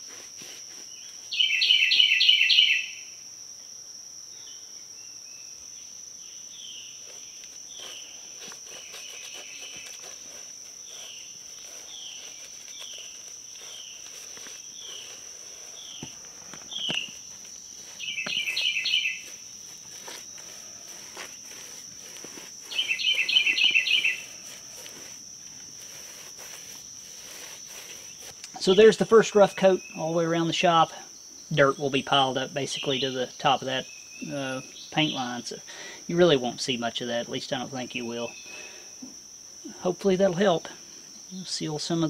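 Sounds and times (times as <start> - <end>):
paint brush scraping and tapping: 0.0 - 1.2, 7.0 - 29.1
high insect buzz: 0.0 - 42.0
bird chirping bursts: 0.9 - 3.0, 10.7 - 24.6
bird singing: 0.9 - 3.2, 4.3 - 21.8, 22.6 - 24.6, 27.2 - 35.6.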